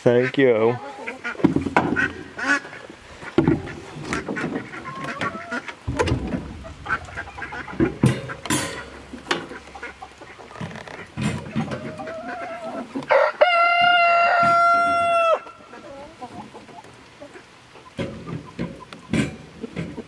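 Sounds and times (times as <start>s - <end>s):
chickens clucking: 0.0s - 20.0s
ducks quacking: 0.0s - 20.0s.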